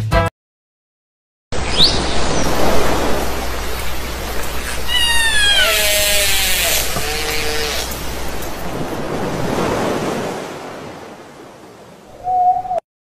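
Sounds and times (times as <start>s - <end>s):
dolphin whistling: 1.6s - 8.8s, 12.2s - 12.8s
water hiss: 1.6s - 10.2s.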